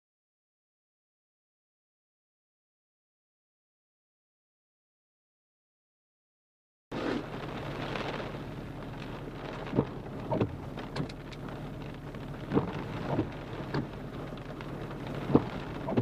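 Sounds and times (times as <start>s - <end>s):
low vehicle hum: 6.9s - 16.0s
raindrops tapping on windshield: 6.9s - 16.0s
steady rain hiss: 6.9s - 16.0s.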